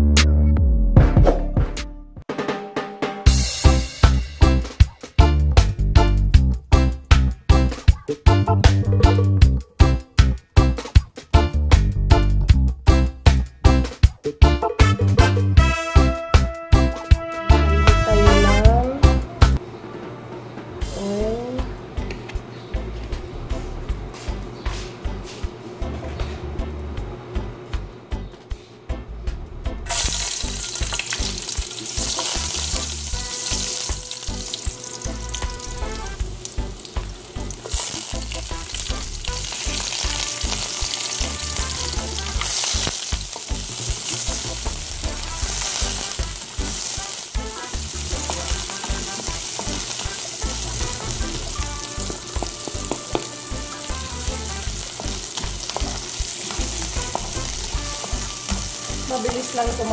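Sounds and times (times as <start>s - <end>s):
onion sizzling in oil: 29.9s - 59.9s.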